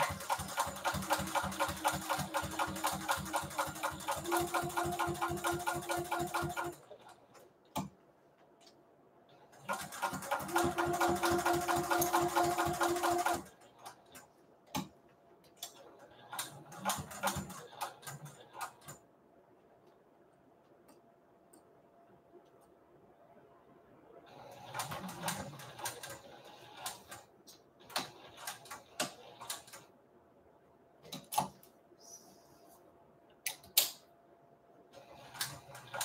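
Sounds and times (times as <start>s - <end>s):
sewing machine stitching: 0.0s - 7.4s, 9.3s - 14.9s, 24.3s - 29.9s, 35.0s - 36.0s.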